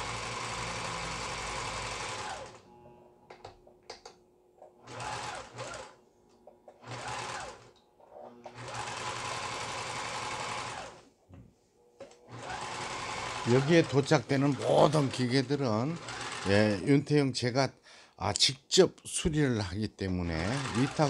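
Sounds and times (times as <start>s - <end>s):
sewing machine stitching: 0.0s - 2.7s, 4.7s - 6.0s, 6.7s - 11.0s, 12.2s - 16.8s, 20.3s - 21.0s.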